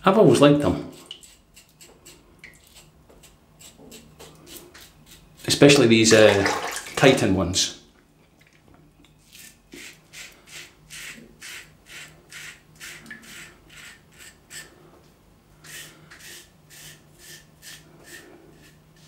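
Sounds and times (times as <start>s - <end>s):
razor scraping stubble: 0.9s - 5.8s.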